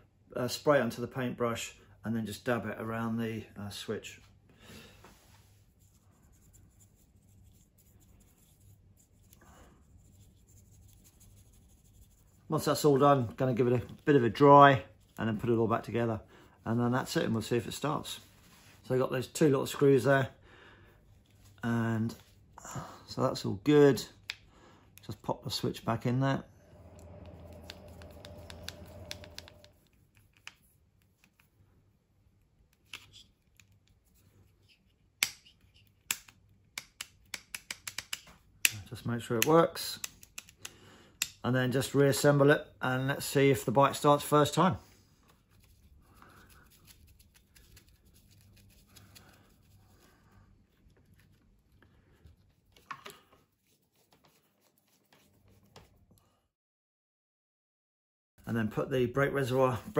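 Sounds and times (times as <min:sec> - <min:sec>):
paintbrush brushing faintly: 0:05.1 - 0:18.9, 0:25.2 - 0:31.6
low steady hum: 0:25.6 - 0:30.2.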